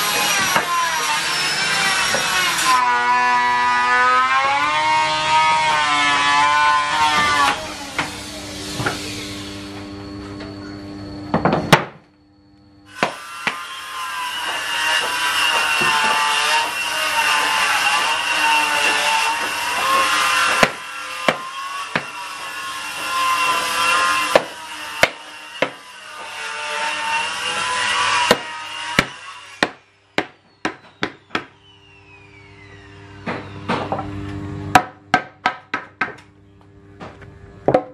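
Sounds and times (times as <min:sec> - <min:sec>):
power tool running: 0:00.0 - 0:10.2, 0:12.9 - 0:34.9
hammer knocking wooden blocks: 0:34.8 - 0:36.2.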